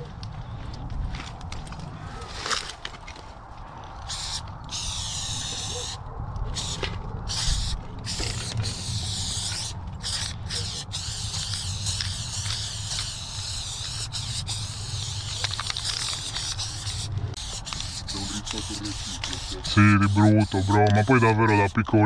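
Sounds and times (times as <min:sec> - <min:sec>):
aerosol spray can hissing: 0:07.4 - 0:19.8.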